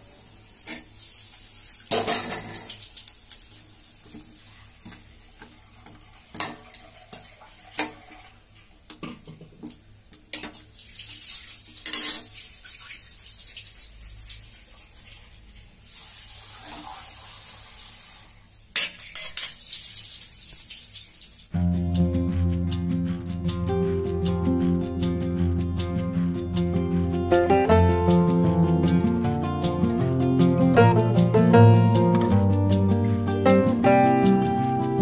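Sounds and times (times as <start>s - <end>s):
steady hiss: 15.7s - 18.6s.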